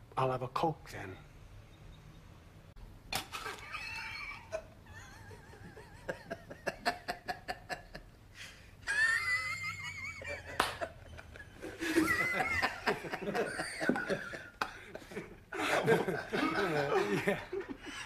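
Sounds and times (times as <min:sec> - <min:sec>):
person laughing hard: 0:08.9 - 0:18.0.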